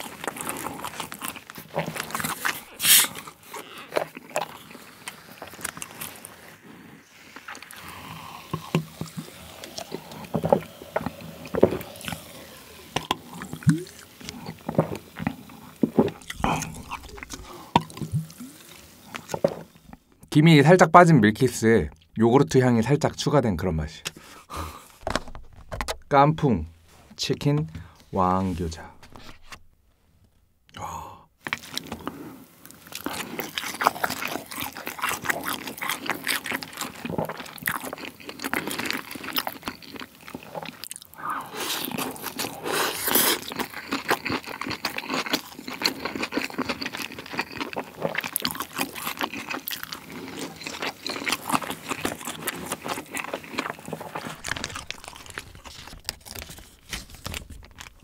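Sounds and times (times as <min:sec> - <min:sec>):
crunchy chewing: 0:00.0 - 0:20.2, 0:31.4 - 0:58.0
plastic wrapper crinkling: 0:15.8 - 0:17.6, 0:25.0 - 0:26.3, 0:50.5 - 0:58.0.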